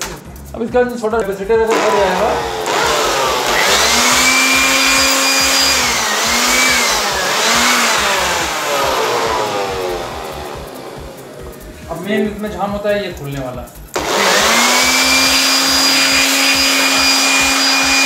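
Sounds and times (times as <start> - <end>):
electric air blower running: 1.7 - 11.9, 13.9 - 18.0.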